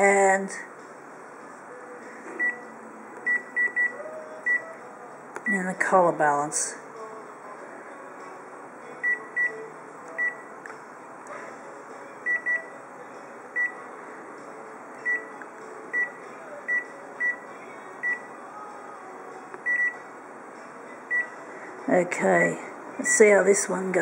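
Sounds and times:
steady background hum: 0.0s - 24.0s.

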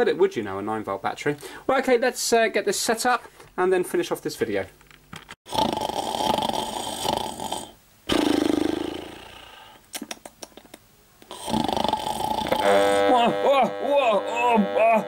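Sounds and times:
person snoring: 5.5s - 9.8s, 11.3s - 15.0s.

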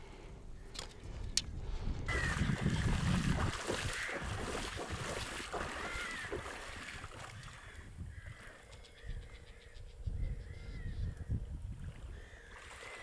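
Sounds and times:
water sloshing around wading legs: 2.2s - 7.8s, 11.8s - 13.0s
bird calls: 5.5s - 11.4s, 12.0s - 13.0s.

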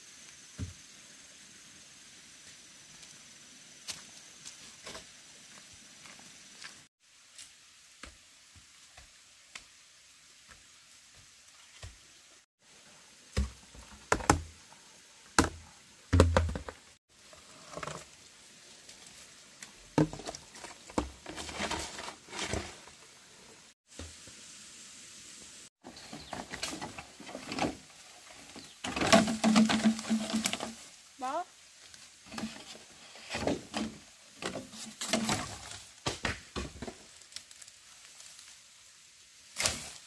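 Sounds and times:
clatter and rustling: 25.9s - 30.8s.

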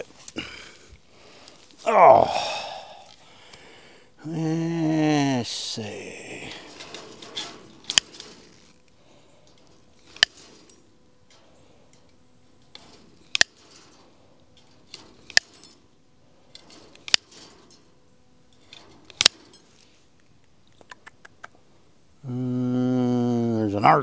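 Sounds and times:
bolt cutters snapping wire: 6.5s - 17.9s, 18.5s - 21.4s.

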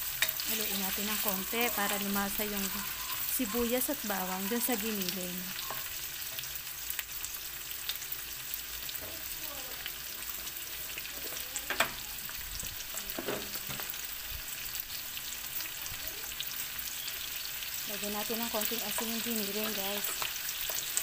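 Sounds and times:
meat sizzling in hot oil: 0.0s - 21.0s.

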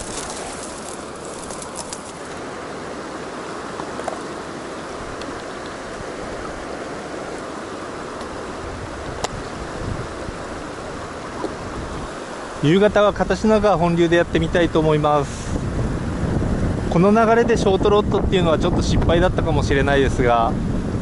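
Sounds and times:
dry grass crackling: 0.0s - 2.4s
river rushing over rocks: 0.0s - 16.3s.

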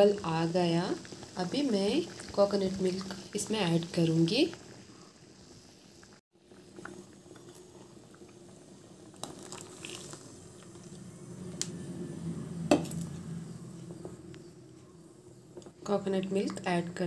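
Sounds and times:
low simmer hum: 0.0s - 17.0s
pot bubbling on stove: 0.0s - 17.0s.

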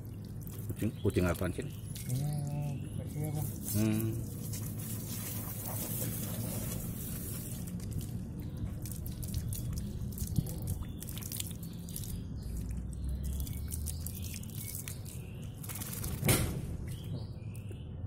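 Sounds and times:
wet cat fur rubbed by hand: 4.4s - 7.8s
water dripping on wet concrete: 7.6s - 16.2s.

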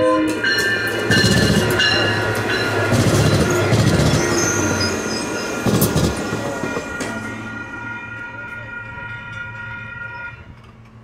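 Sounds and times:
train horn blast: 0.0s - 2.2s, 6.0s - 10.7s
railcar wheels and engine rumble: 0.0s - 11.0s.

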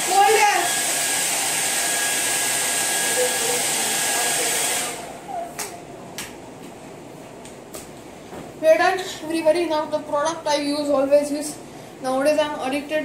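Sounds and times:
hair dryer blowing: 0.0s - 5.5s.

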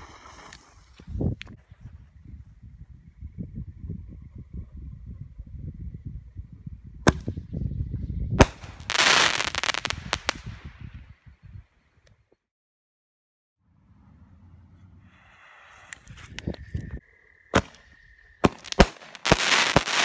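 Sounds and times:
firework shell launch report: 8.4s - 10.9s, 17.5s - 20.0s.

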